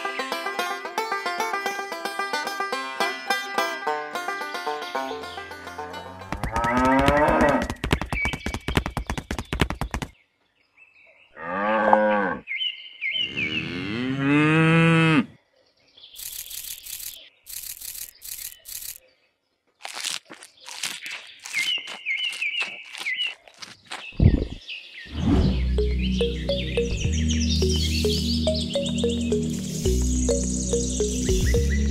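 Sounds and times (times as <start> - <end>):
banjo music: 0.0 - 7.3, 25.8 - 31.9
cows mooing: 6.1 - 7.7, 11.4 - 12.4, 13.3 - 15.3
short crunching sounds: 19.8 - 24.6.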